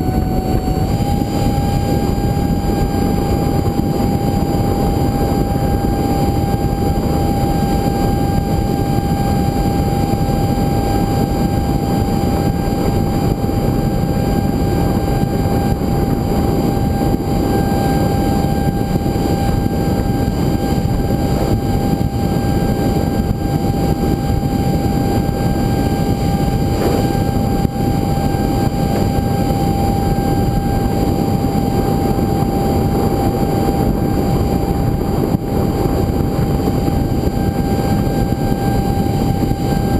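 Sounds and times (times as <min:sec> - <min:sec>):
high fan whine: 0:00.0 - 0:39.9
wind rushing over microphone: 0:00.0 - 0:39.9.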